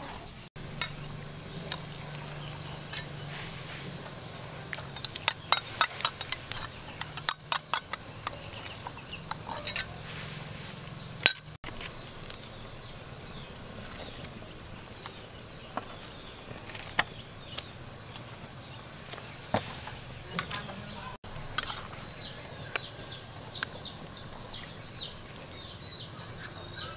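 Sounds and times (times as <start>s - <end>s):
soup simmering: 0.6s - 20.6s, 21.2s - 26.5s
metal ladle clinking on pot: 4.7s - 10.0s, 11.2s - 11.6s, 21.5s - 21.9s.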